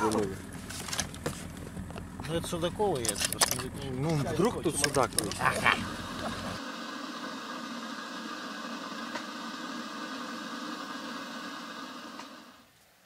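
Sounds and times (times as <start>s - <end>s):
gas burner hissing: 5.3s - 12.6s.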